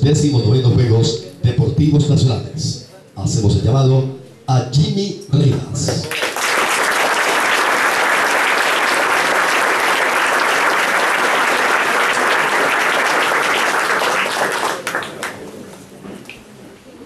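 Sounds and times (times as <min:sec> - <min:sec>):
audience applauding: 0:06.0 - 0:15.5.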